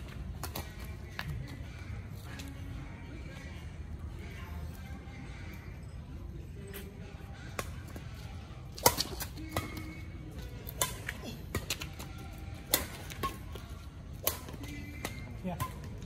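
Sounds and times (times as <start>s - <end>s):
rackets striking shuttlecock: 8.6s - 16.0s.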